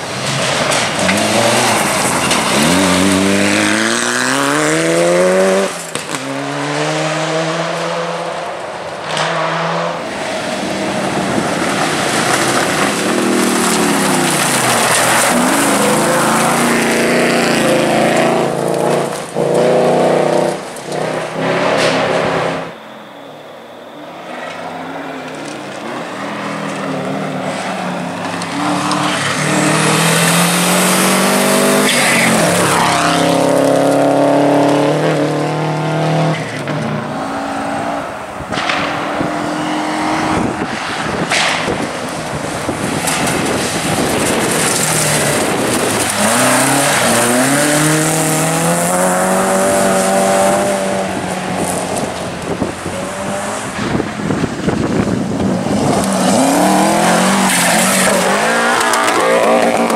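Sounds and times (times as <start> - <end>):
rally car engines revving: 0.0 - 59.9
tyres hissing on gravel: 10.4 - 17.5.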